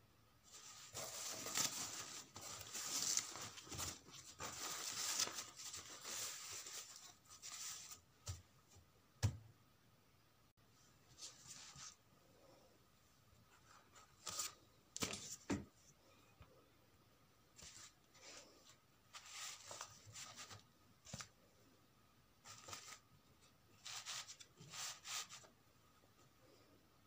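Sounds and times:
fabric rustling: 0.5 - 8.0.

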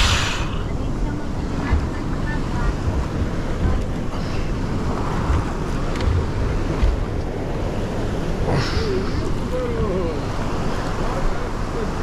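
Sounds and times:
surf breaking on shore: 0.0 - 12.0
wind buffeting microphone: 0.0 - 12.0.

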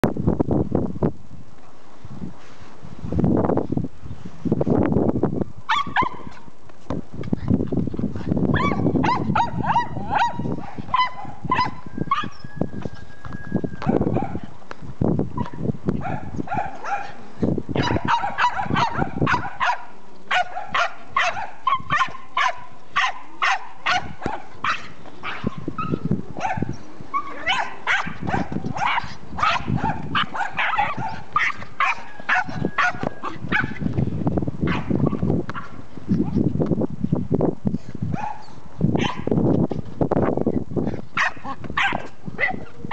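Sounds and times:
small dog barking: 5.7 - 6.3, 8.5 - 12.4, 16.0 - 17.2, 17.8 - 25.6, 26.4 - 33.8, 34.6 - 35.8, 38.1 - 39.3, 41.2 - 42.7.

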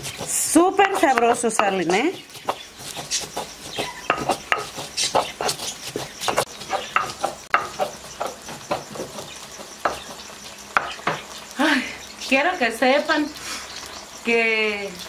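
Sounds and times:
stone pestle grinding: 0.0 - 11.2.

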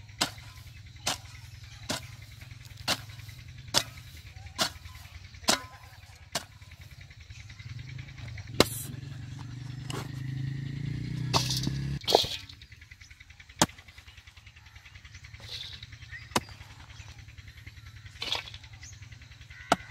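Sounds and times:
hand hoe chopping soil: 0.1 - 6.7, 8.6 - 8.9, 11.3 - 12.5, 13.6 - 13.9, 16.2 - 17.0, 19.6 - 19.9.

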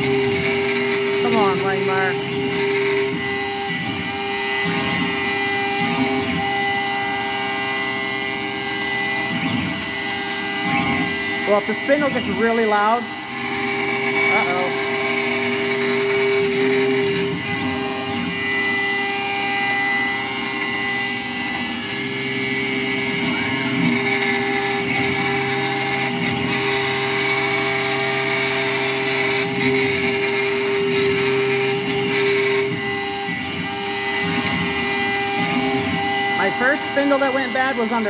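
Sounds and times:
mill spindle cutting metal: 0.0 - 38.0.

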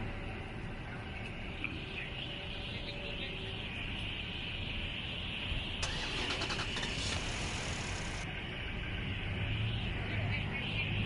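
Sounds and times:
vehicle engine cranking and idling: 5.8 - 8.2.

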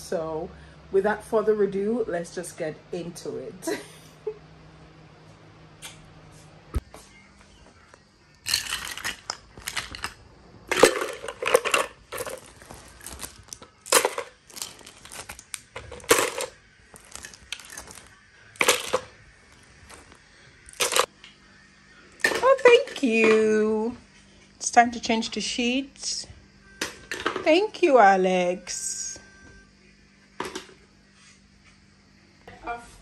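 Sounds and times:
small hard objects clattering: 8.4 - 21.1.

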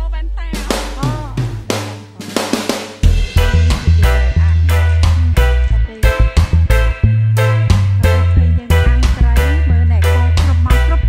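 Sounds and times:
background music with steady beat: 0.0 - 11.0
deep held bass line: 0.0 - 11.0.

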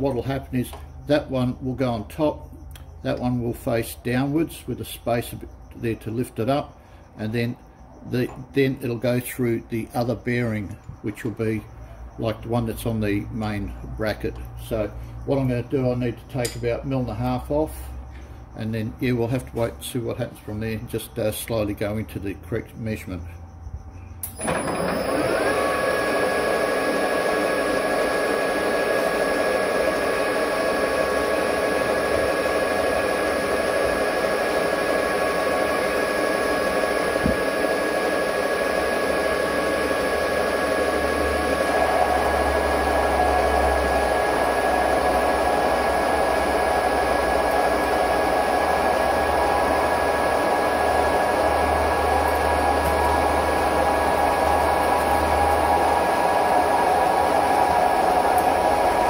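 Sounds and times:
metal lathe whining: 24.2 - 59.0.

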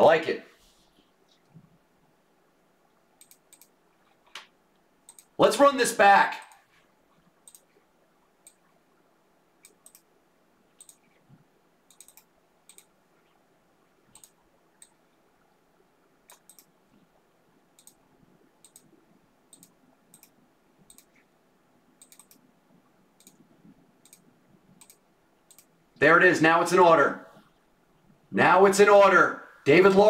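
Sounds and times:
computer mouse clicks: 3.2 - 5.4, 7.4 - 7.8, 8.4 - 8.7, 9.6 - 10.1, 10.7 - 11.2, 11.9 - 12.9, 14.1 - 15.0, 16.2 - 17.0, 17.8 - 18.0, 18.6 - 21.3, 22.0 - 22.5, 23.2 - 23.4, 24.0 - 25.7.

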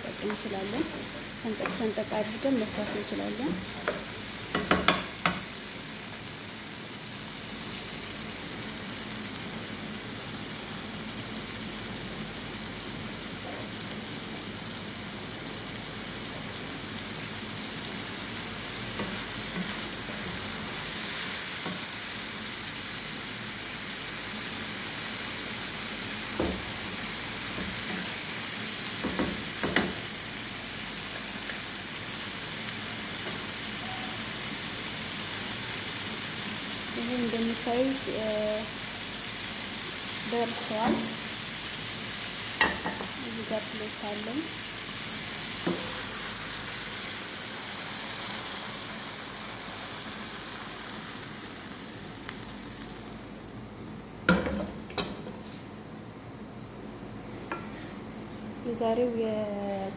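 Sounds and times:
meat sizzling in a pan: 0.0 - 54.9.

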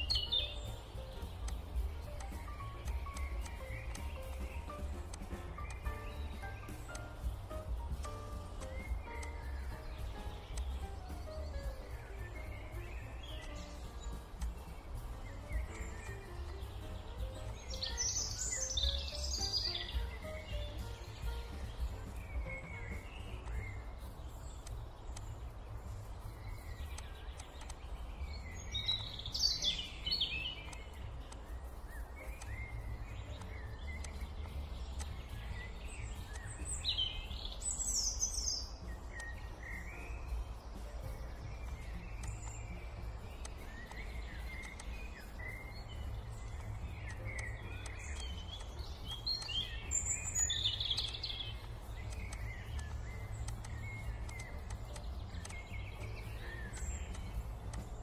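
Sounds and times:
birds chirping and calling: 0.0 - 58.0
steady low rumble: 0.0 - 58.0.

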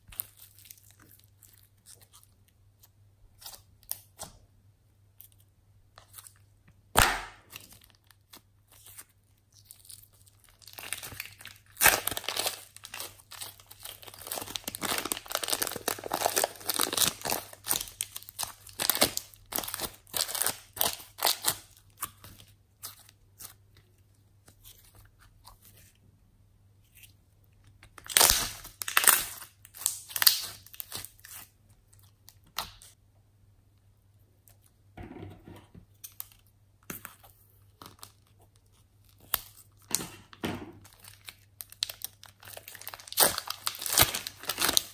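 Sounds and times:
plastic piping bag crinkling: 7.4 - 23.6, 27.9 - 33.0, 40.8 - 44.9
slime squished by hand: 40.8 - 44.9.

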